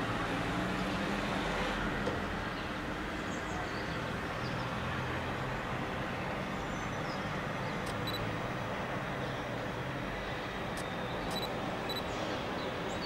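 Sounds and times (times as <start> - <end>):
distant road traffic hum: 0.0 - 13.0.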